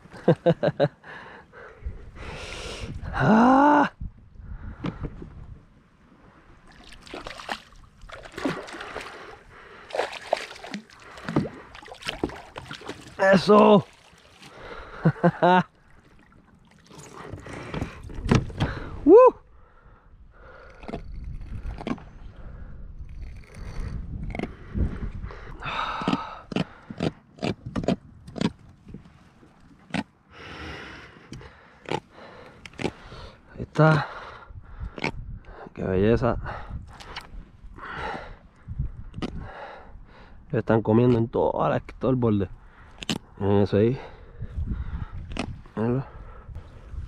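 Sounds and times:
fish splashing at water surface: 6.7 - 13.2
fish thrashing knocks and thuds: 9.9 - 14.2, 17.1 - 18.9.

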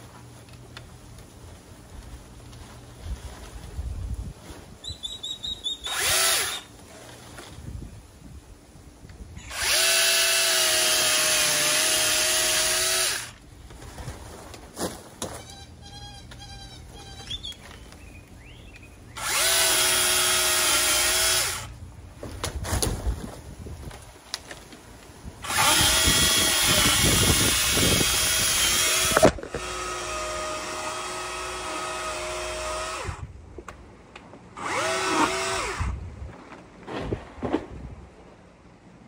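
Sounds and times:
mini chainsaw motor whine: 5.8 - 6.7, 9.4 - 13.4, 19.2 - 21.7, 25.4 - 33.2, 34.6 - 36.0.

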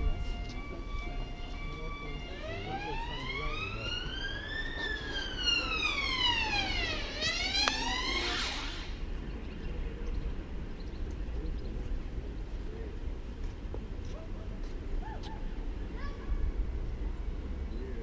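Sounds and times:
emergency siren wailing: 0.0 - 9.1.

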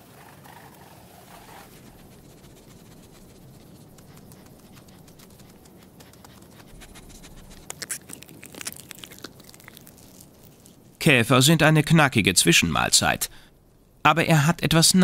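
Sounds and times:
hedgehog paws scratching on soil: 0.2 - 11.0.

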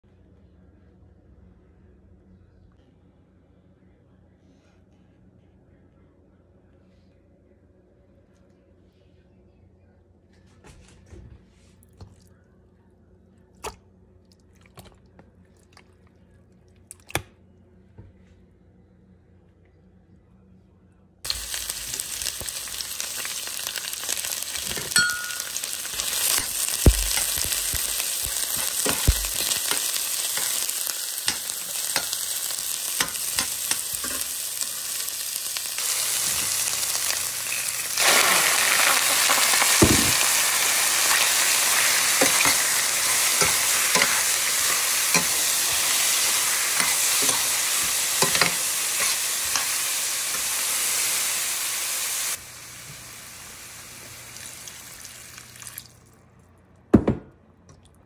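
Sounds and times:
food sizzling in hot oil: 21.3 - 55.8.

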